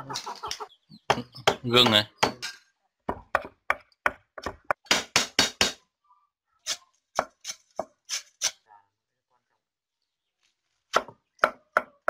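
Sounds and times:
knife chopping on wooden board: 3.1s - 5.8s.

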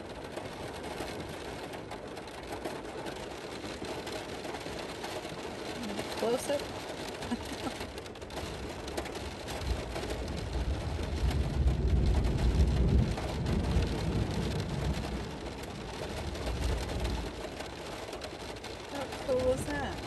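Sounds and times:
rain on car windows and roof: 0.0s - 20.0s
low rumble: 9.6s - 17.5s.

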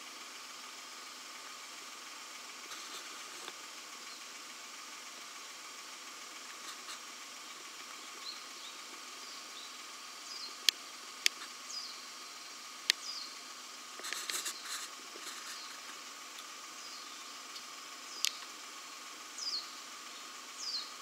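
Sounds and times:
steady hiss: 0.0s - 21.0s
brief rustle: 2.7s - 3.6s, 14.0s - 16.5s
sharp clicks: 17.5s - 18.5s.

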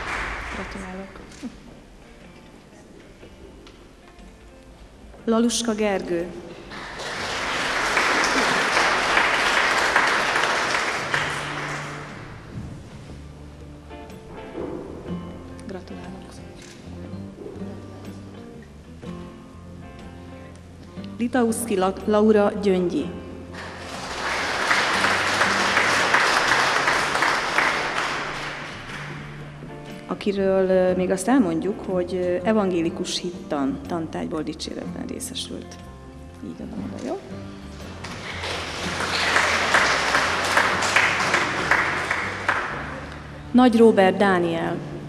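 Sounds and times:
audience applauding: 0.0s - 1.0s, 6.5s - 12.5s, 23.6s - 29.4s, 37.8s - 43.4s.

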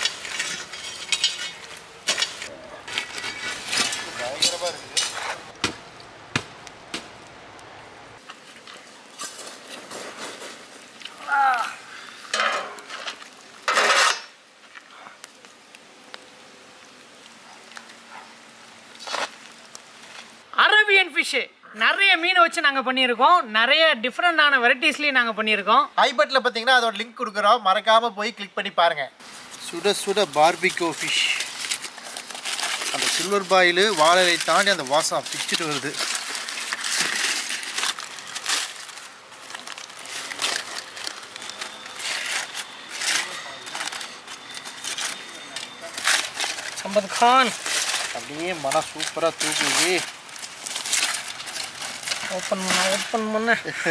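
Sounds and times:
foil scraping against metal: 0.0s - 5.5s, 9.2s - 10.8s, 12.5s - 14.4s, 29.4s - 53.9s
foil rustling: 0.0s - 5.6s, 8.2s - 15.6s, 16.2s - 20.4s, 29.2s - 53.9s.

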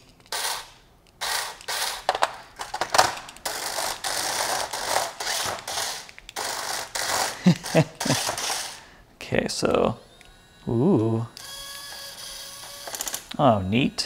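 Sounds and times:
toy robot motors whirring: 0.0s - 8.9s, 9.7s - 14.0s.

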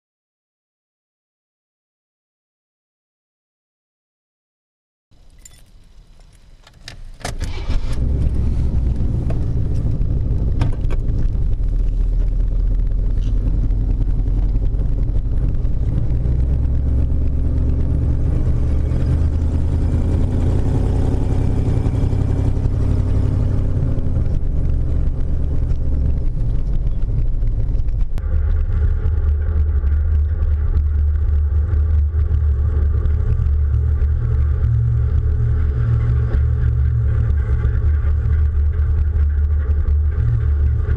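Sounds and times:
keys jingling: 5.2s - 6.5s
truck driving: 5.2s - 40.9s
truck engine starting and running: 5.2s - 40.9s.

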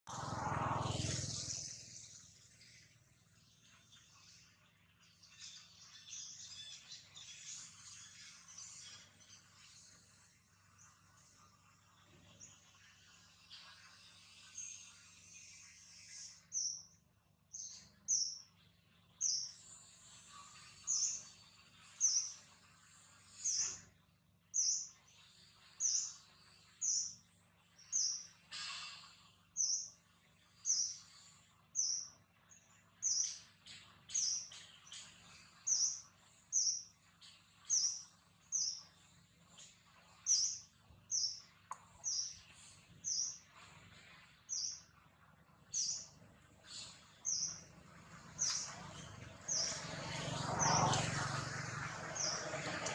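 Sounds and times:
bird chirping: 1.0s - 23.8s, 24.5s - 51.0s.

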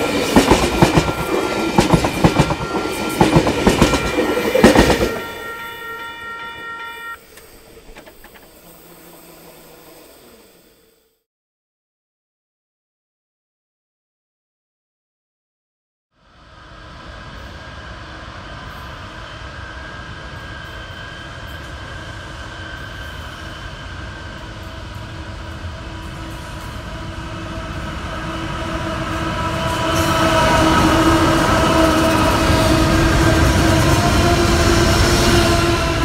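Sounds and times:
diesel train passing: 0.0s - 11.2s, 16.2s - 36.0s.

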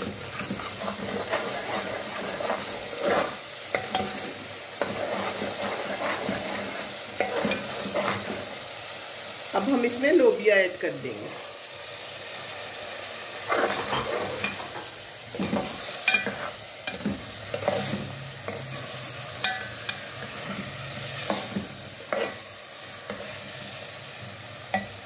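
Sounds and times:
food sizzling: 0.0s - 25.0s
ladle scraping and clinking pot: 0.2s - 8.4s, 13.5s - 22.4s.

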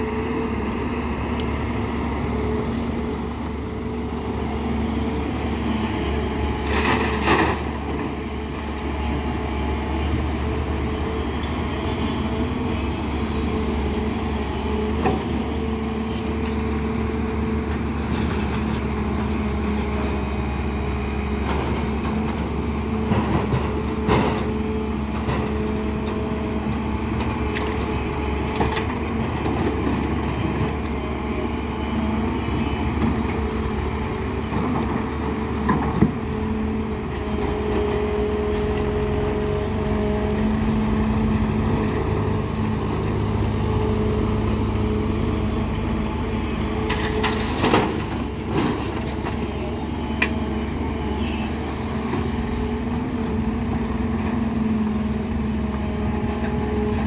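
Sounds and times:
excavator diesel engine running: 0.0s - 57.0s
hydraulics humming: 0.1s - 57.0s.

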